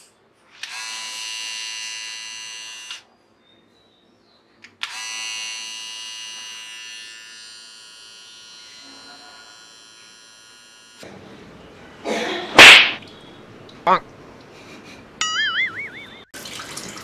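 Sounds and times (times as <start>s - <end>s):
electric beard trimmer buzzing: 0.6s - 3.0s, 4.8s - 11.0s.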